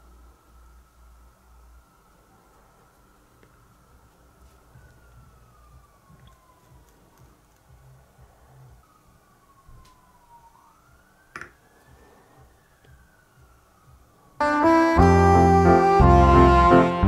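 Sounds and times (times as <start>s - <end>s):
faint low rumble: 0.0s - 10.2s
loud keyboard music: 14.4s - 17.0s.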